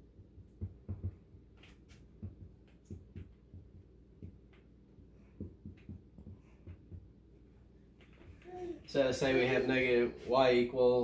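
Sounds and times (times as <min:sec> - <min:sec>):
low room hum: 0:00.0 - 0:11.0
marker tapping on whiteboard: 0:00.1 - 0:07.3.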